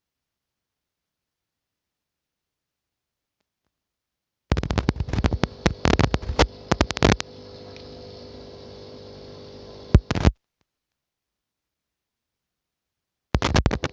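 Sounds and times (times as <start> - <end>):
steady hum: 4.5 - 10.3.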